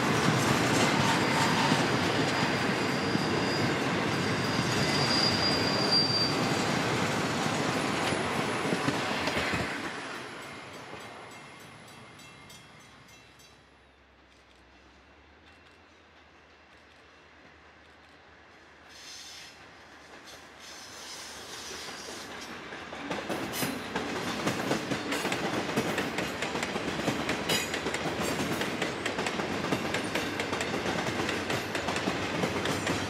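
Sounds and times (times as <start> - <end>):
train wheels rumbling on rails: 0.0 - 33.0
high wheel squeal: 0.7 - 9.1.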